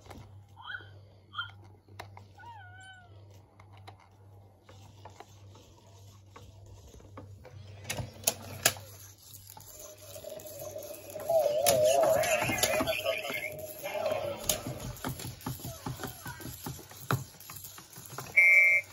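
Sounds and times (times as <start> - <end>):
toy motors ticking and whirring: 0.0 - 18.9
warbling baby coo: 10.2 - 14.4.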